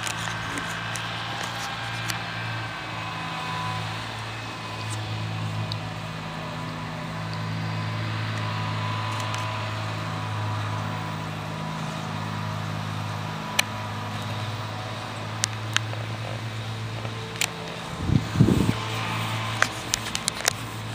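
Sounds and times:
low motor hum: 0.0s - 20.9s.

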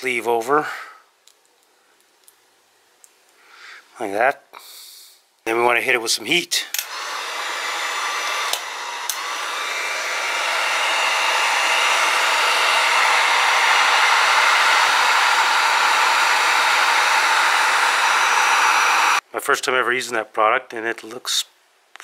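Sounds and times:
heat gun blowing: 6.7s - 19.2s.

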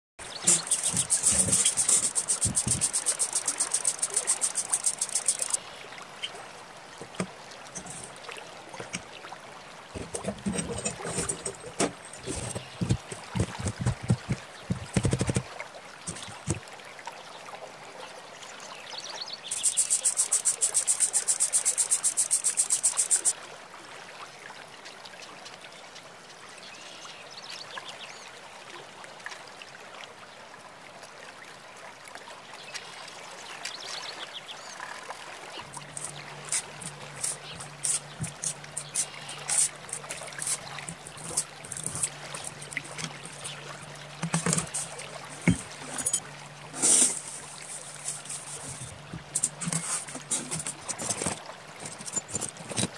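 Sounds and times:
palette knife scraping wet clay: 35.8s - 43.6s, 46.8s - 51.2s.

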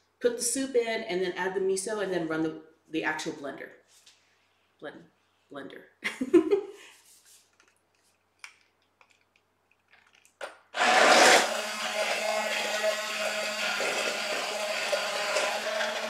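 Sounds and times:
immersion blender running: 10.8s - 16.0s.

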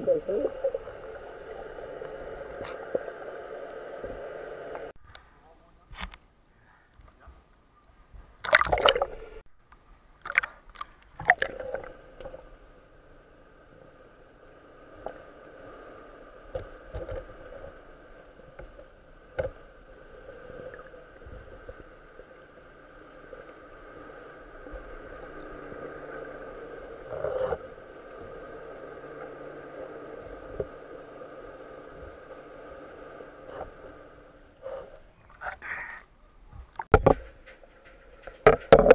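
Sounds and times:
boat engine underwater drone: 0.0s - 5.0s, 10.7s - 36.0s
sharp clicks and knocks: 36.8s - 38.9s.

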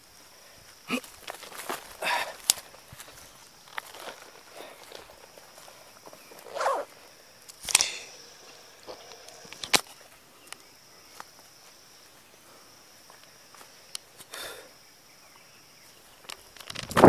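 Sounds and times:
footsteps on forest trail: 0.0s - 16.6s
sharp click: 7.5s - 8.2s.

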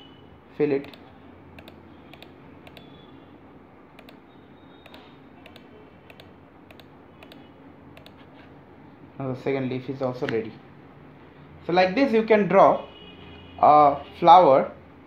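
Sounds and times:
mouse button clicking: 1.6s - 2.9s, 4.0s - 4.2s, 4.8s - 7.4s, 8.0s - 8.2s.

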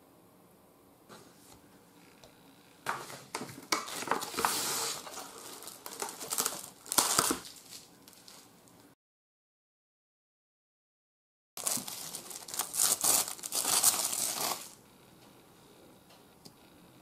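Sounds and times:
plastic cling wrap crinkling: 2.9s - 8.8s, 11.6s - 14.8s.

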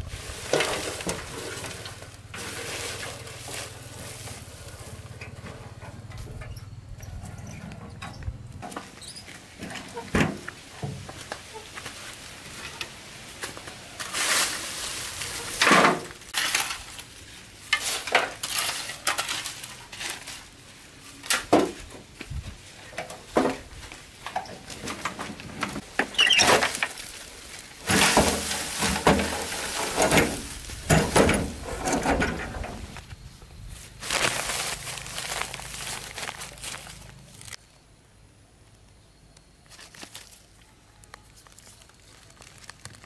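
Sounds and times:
load tipped out of wheelbarrow: 0.0s - 6.5s, 14.0s - 17.0s, 27.8s - 33.0s
shovel scraping metal wheelbarrow: 0.0s - 11.8s, 12.5s - 22.0s, 22.9s - 33.1s.

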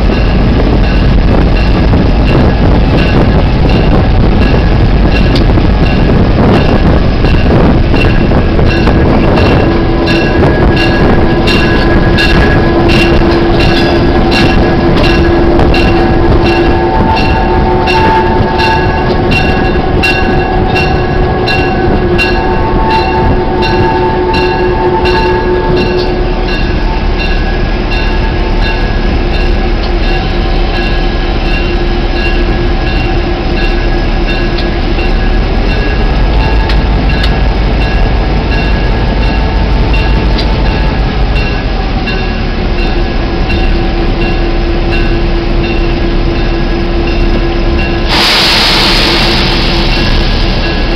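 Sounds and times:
diesel locomotive engine hum: 0.0s - 50.9s.

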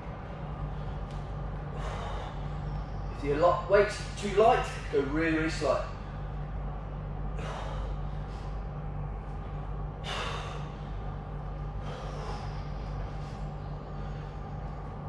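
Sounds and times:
steady low hum: 0.0s - 15.0s
man breathing out hard: 1.7s - 2.6s, 7.3s - 8.6s, 9.9s - 14.6s.

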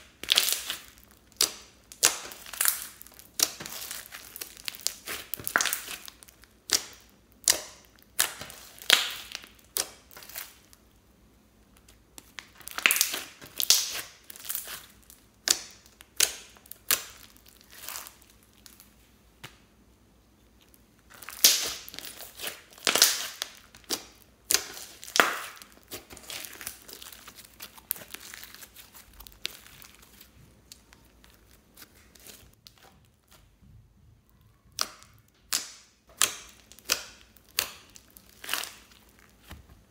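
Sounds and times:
slime squeezed with sticky pops: 0.1s - 10.7s, 21.1s - 33.4s.

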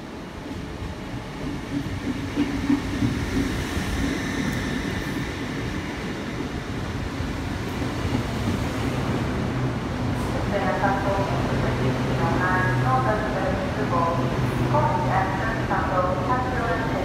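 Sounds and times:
train slowing into platform: 0.0s - 17.0s.

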